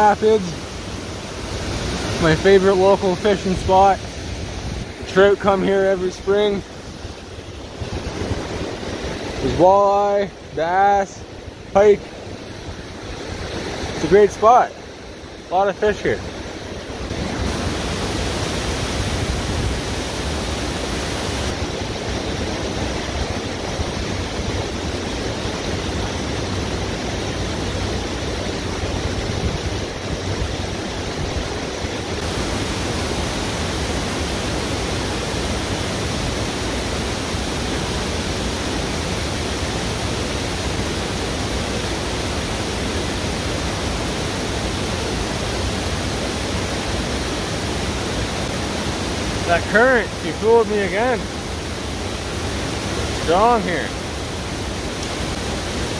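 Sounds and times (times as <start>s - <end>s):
river rapids rushing: 0.0s - 55.9s.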